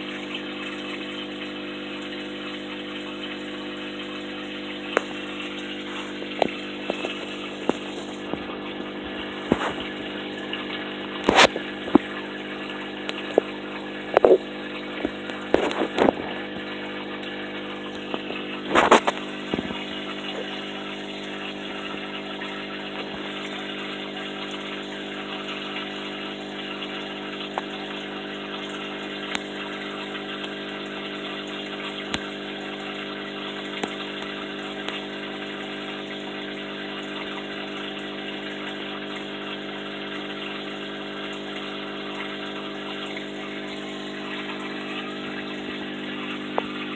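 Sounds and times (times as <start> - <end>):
aquarium pump humming: 0.0 - 46.9
water bubbling: 0.0 - 46.9
sharp clicks and knocks: 14.1 - 14.4.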